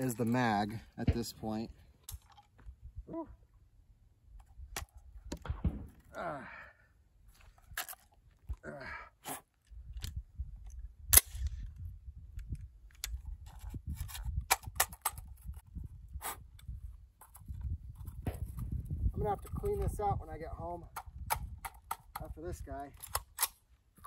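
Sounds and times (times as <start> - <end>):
wind rumble on microphone: 9.7 - 22.9
rifle action metallic clicks: 22.9 - 23.6.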